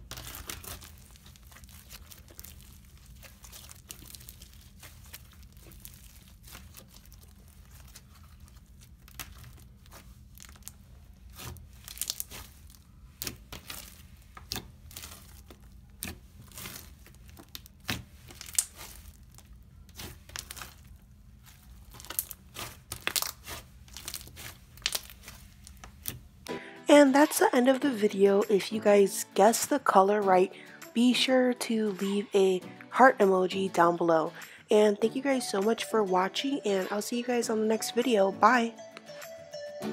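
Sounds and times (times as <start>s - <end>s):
slime crackling and popping: 0.0s - 26.5s.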